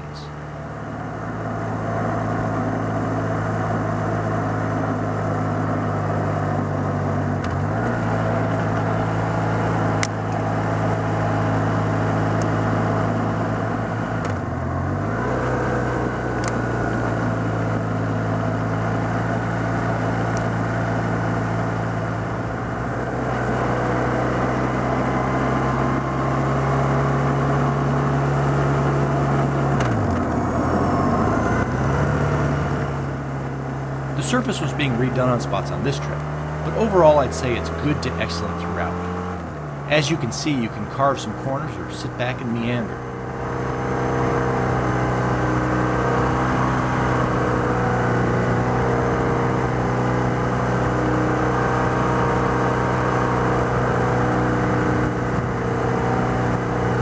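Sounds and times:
motorcycle engine running: 0.0s - 57.0s
wind and road rush: 0.0s - 57.0s.

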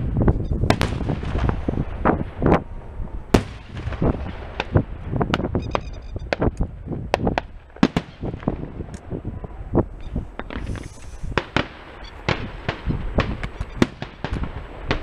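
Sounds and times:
firework crackling: 0.0s - 5.6s, 10.3s - 15.0s
firework shells bursting: 10.4s - 15.0s.

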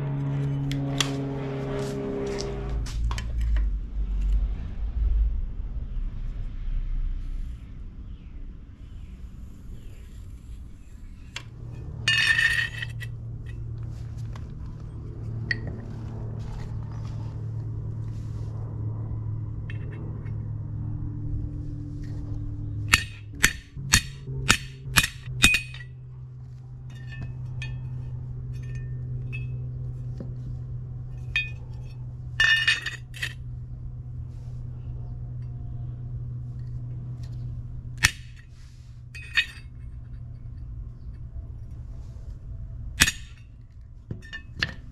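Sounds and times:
steady low hum: 0.0s - 44.9s
hammer striking metal punch: 22.9s - 25.9s, 38.0s - 38.4s, 43.0s - 43.4s.

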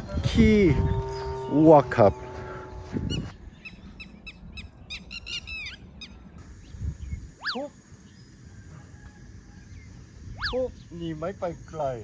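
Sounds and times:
bird chirping: 0.0s - 8.7s.

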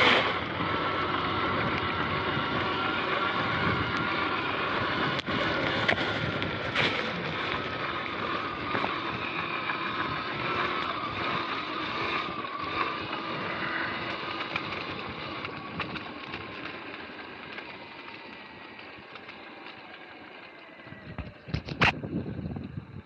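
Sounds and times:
wind on microphone: 0.0s - 11.5s, 20.8s - 23.0s
electric motor whine: 0.0s - 23.0s.

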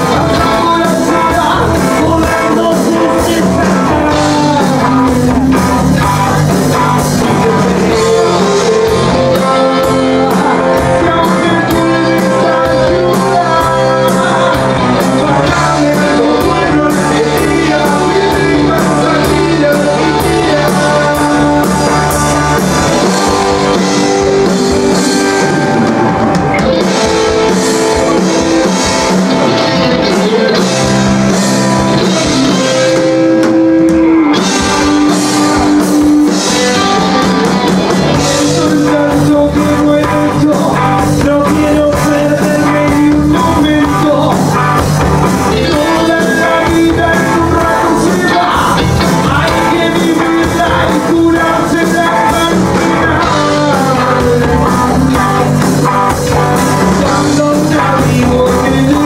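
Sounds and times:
man singing into microphone: 0.0s - 23.8s, 30.0s - 31.2s, 38.1s - 44.6s, 45.5s - 55.6s, 56.6s - 59.0s
bass guitar: 0.0s - 59.0s
drum kit: 0.0s - 59.0s
electric guitars: 0.0s - 59.0s.

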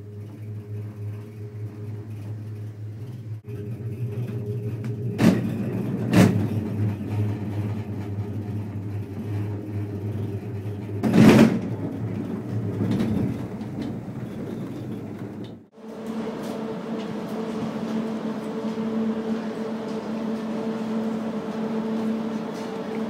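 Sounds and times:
drive machinery humming: 0.0s - 23.0s
loud clatter: 0.7s - 15.7s.

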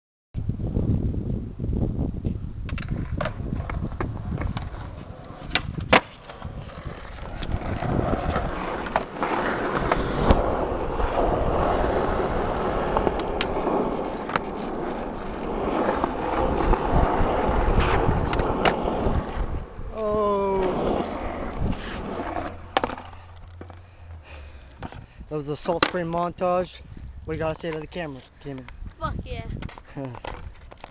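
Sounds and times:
skateboard wheels rolling on concrete: 0.4s - 30.9s
skateboard clacks: 2.6s - 19.5s, 20.3s - 23.8s, 25.7s - 26.1s.

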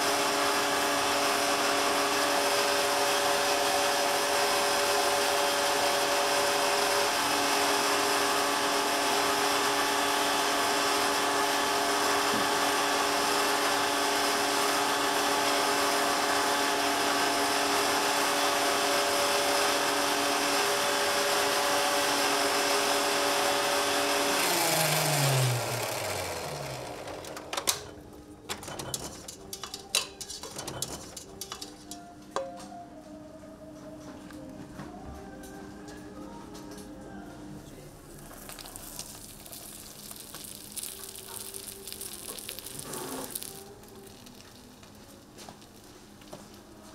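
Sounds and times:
stand mixer motor whining: 0.0s - 27.9s
sharp clicks and knocks: 28.5s - 31.9s.

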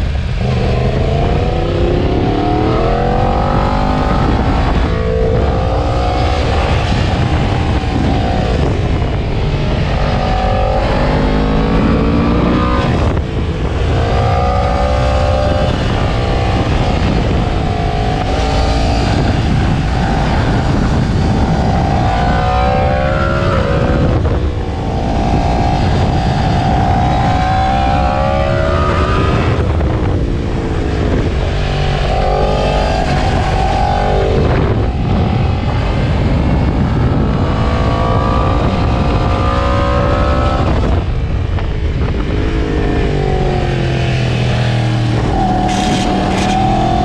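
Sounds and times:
motorcycle engine at racing speed: 0.0s - 47.0s
wind rush: 0.0s - 47.0s.

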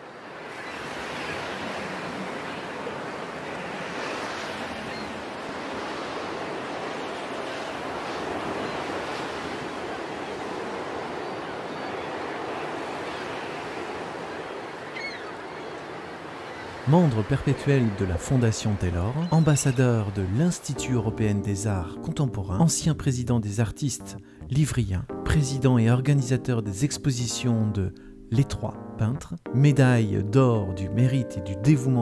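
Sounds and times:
sea surf breaking: 0.0s - 21.8s.

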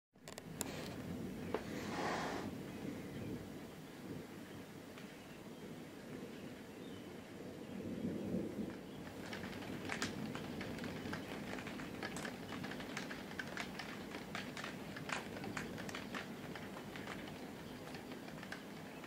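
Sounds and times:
steady storm rain: 0.2s - 19.0s
raindrops ticking on window: 8.6s - 19.0s.

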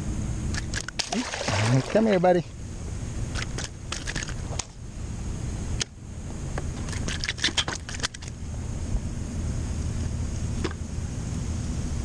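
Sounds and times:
fish splashing: 1.0s - 2.2s
fishing line rattling clicks: 3.3s - 4.7s.

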